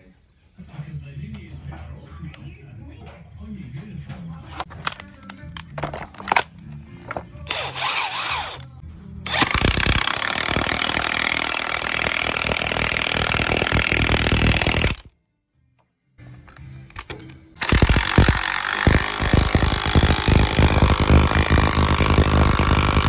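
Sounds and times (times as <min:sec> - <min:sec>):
impact wrench rattling: 0:04.6 - 0:08.6, 0:09.3 - 0:15.1, 0:16.9 - 0:23.0.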